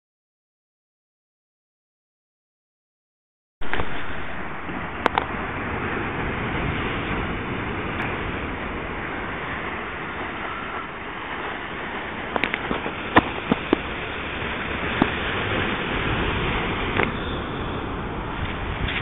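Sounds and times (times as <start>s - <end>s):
surf washing onto rocky shore: 3.6s - 19.0s.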